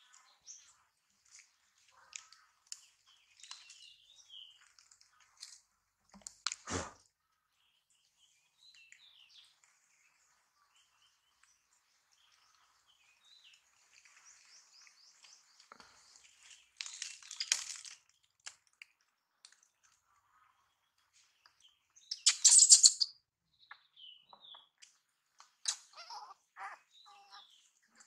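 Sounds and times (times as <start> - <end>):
faint birds chirping: 0.0 - 28.0
crunching and rustling: 15.4 - 19.7.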